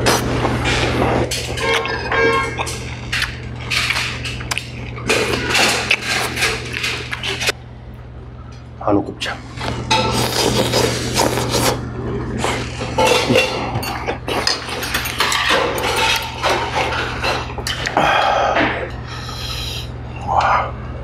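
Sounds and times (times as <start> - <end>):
chewing and slurping: 0.0 - 7.5, 9.6 - 18.0
utensils clinking in metal pot: 12.8 - 17.8.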